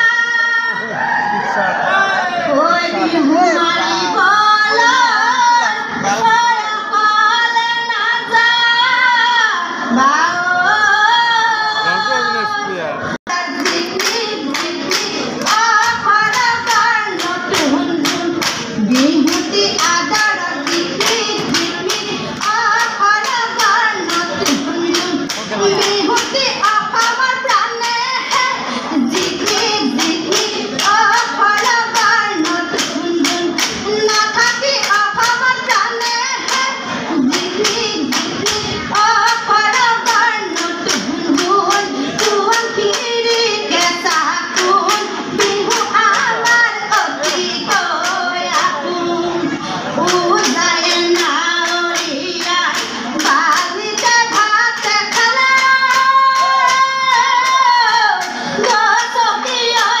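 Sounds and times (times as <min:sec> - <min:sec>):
women singing: 0:00.0 - 0:01.2, 0:01.8 - 0:12.6, 0:13.3 - 1:00.0
percussion strikes: 0:13.3 - 1:00.0
hand claps: 0:13.5 - 0:26.4, 0:29.1 - 0:36.7, 0:37.3 - 0:48.7.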